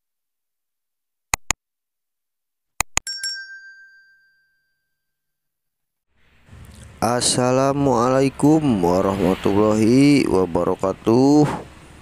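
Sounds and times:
quick pops: 0:01.3 - 0:01.6
bright bell-like chime: 0:03.1 - 0:05.3.

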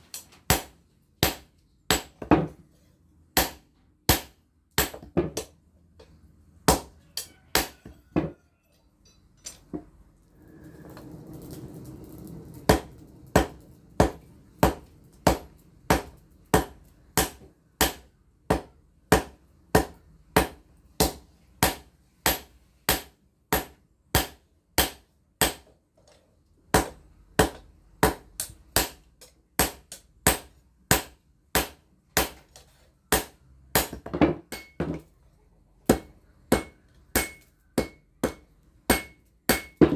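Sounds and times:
hammer striking hot steel on anvil: 0:03.4 - 0:05.5, 0:06.7 - 0:08.0, 0:12.7 - 0:25.6, 0:26.7 - 0:32.4, 0:33.1 - 0:35.0, 0:35.9 - 0:39.9.

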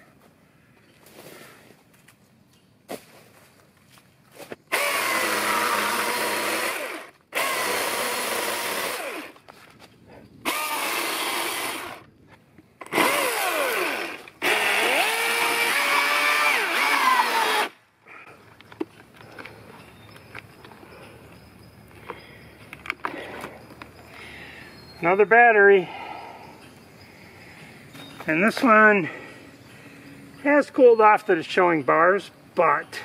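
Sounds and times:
electric chainsaw cutting log: 0:04.7 - 0:09.4, 0:10.4 - 0:12.0, 0:12.8 - 0:17.8.

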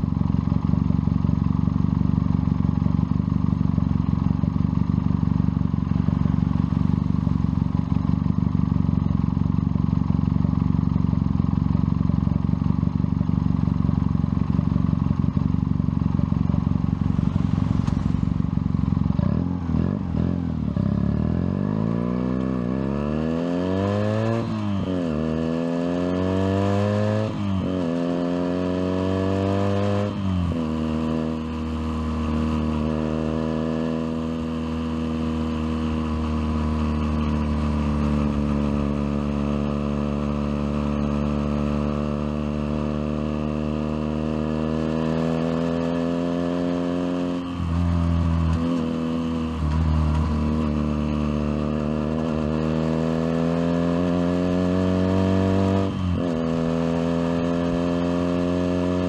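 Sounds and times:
motorcycle engine idling: 0:00.0 - 0:20.9, 0:35.7 - 0:41.4
motorcycle accelerating through gears: 0:00.0 - 0:59.0.

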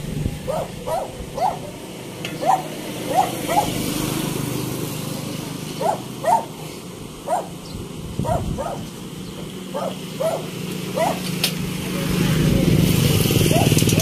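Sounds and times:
dog barking: 0:00.5 - 0:01.8, 0:02.4 - 0:03.8, 0:05.8 - 0:06.6, 0:07.2 - 0:07.6, 0:08.2 - 0:08.9, 0:09.7 - 0:11.3, 0:13.5 - 0:13.8.

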